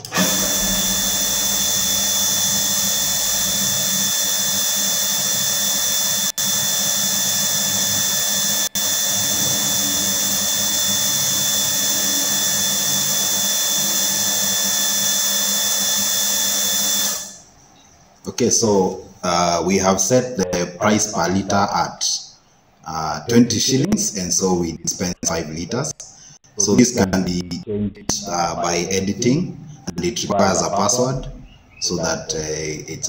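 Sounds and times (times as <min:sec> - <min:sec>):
electric water pump running: 0:00.0 - 0:17.4.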